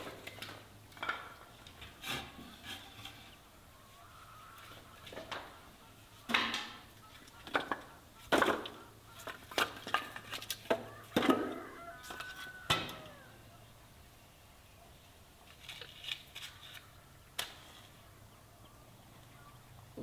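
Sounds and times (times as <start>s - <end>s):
firewood logs knocking: 6.3s - 13.0s.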